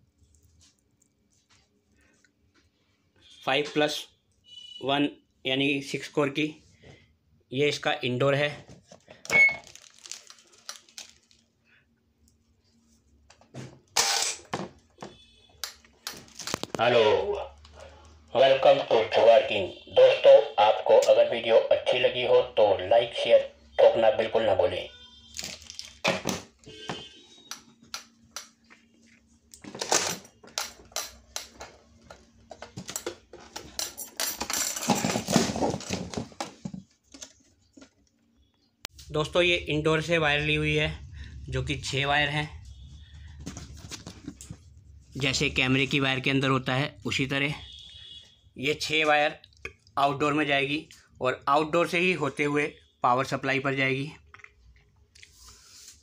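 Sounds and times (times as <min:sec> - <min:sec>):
faint steady hum: 0:26.7 - 0:51.8.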